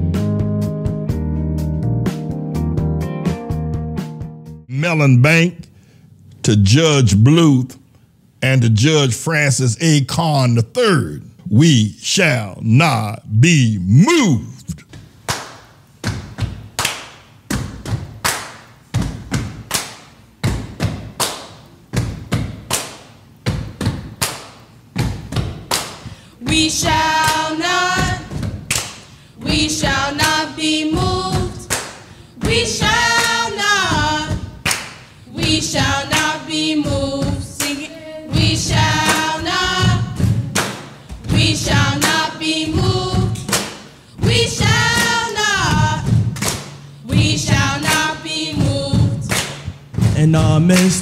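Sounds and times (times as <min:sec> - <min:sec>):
steady beat of thuds and taps: 0:14.0 - 0:51.0
children's choir singing: 0:26.4 - 0:28.5, 0:29.4 - 0:31.8, 0:32.4 - 0:34.6, 0:35.3 - 0:40.4, 0:41.3 - 0:46.2, 0:47.1 - 0:49.4.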